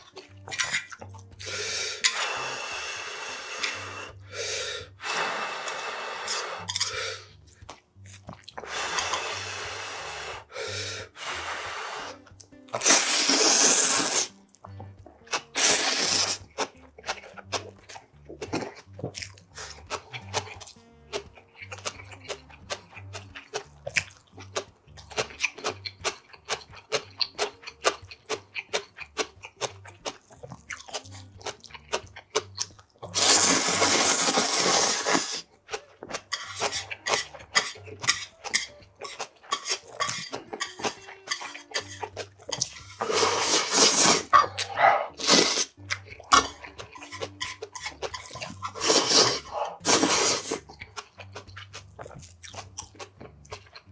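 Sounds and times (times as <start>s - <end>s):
wet chewing and crunching: 0.0s - 2.2s, 6.6s - 9.2s, 12.1s - 53.9s
person slurping noodles: 0.8s - 7.4s, 8.6s - 14.4s, 15.3s - 16.7s, 33.0s - 35.5s, 39.0s - 50.7s.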